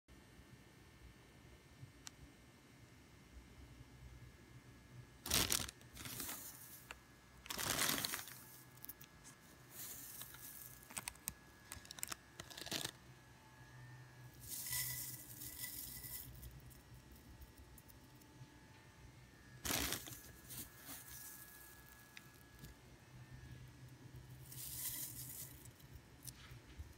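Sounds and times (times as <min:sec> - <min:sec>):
dried herbs rustling in plastic bag: 0:05.3 - 0:09.0, 0:09.6 - 0:13.0, 0:14.4 - 0:16.4, 0:19.6 - 0:22.2, 0:24.4 - 0:26.5.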